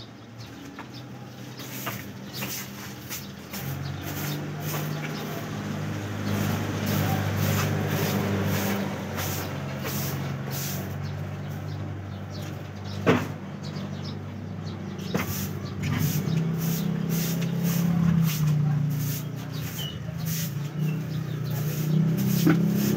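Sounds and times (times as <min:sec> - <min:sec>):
broom sweeping floor: 0:01.4 - 0:11.0, 0:15.0 - 0:22.9.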